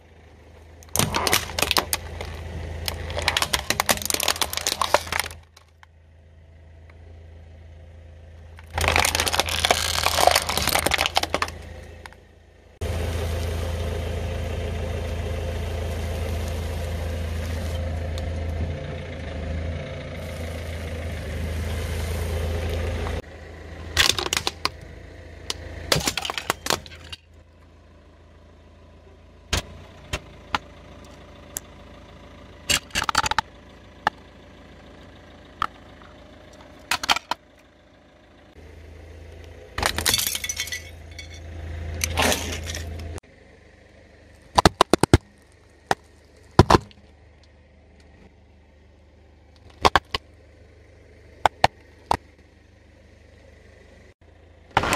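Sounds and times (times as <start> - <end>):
car engine running low: 0.0 - 54.9
tyres crushing brittle objects: 0.8 - 5.8, 8.6 - 12.2, 24.0 - 24.8, 25.9 - 27.2, 44.3 - 47.1, 49.6 - 50.2.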